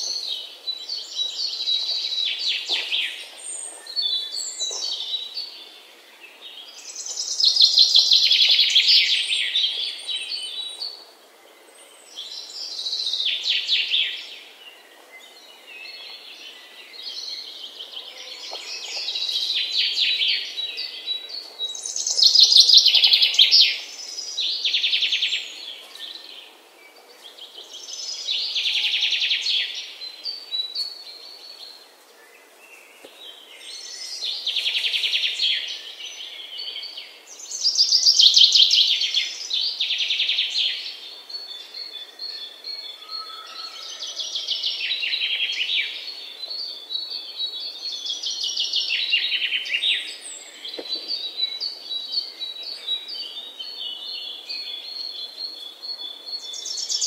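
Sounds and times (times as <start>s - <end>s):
faint background hiss: 0.0s - 43.0s
songbird singing: 0.0s - 57.0s.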